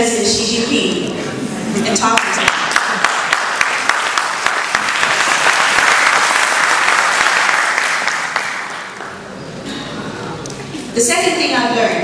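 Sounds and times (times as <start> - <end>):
audience applauding: 2.1 - 9.4.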